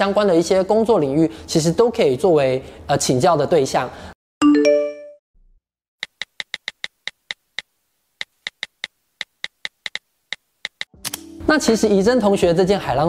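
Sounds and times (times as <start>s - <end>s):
quick high electronic clicks: 6.0s - 11.2s.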